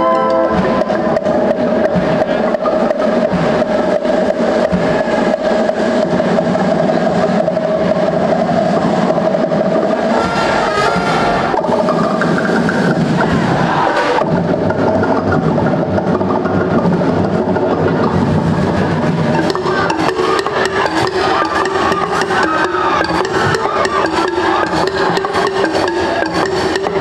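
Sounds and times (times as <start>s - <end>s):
percussion dance music: 0.0s - 27.0s
steady held tone: 0.0s - 27.0s.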